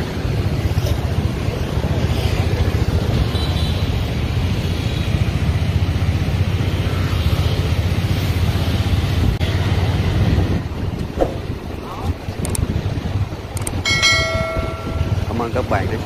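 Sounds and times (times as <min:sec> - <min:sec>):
wind buffeting microphone: 0:07.9 - 0:16.0
motorbike engine running: 0:13.6 - 0:15.9.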